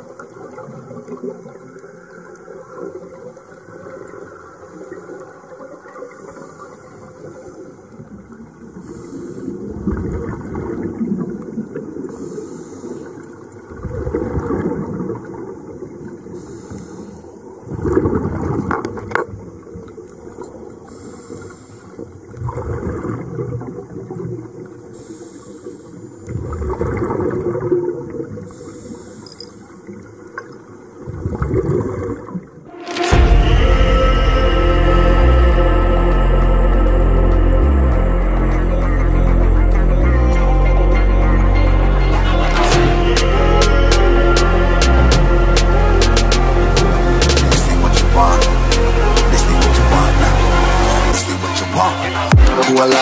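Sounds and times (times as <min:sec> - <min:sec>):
low underwater noise: 0:00.0 - 0:53.0
gush of exhaled bubbles: 0:08.8 - 0:12.3, 0:13.7 - 0:15.8, 0:22.4 - 0:24.4, 0:26.3 - 0:28.7, 0:31.0 - 0:32.6.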